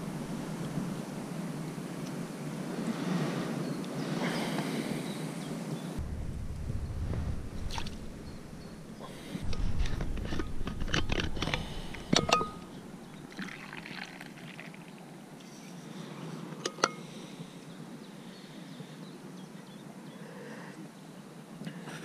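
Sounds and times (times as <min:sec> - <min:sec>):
metal clink: 0:12.1 - 0:12.7
drink pouring into cup: 0:13.3 - 0:14.9.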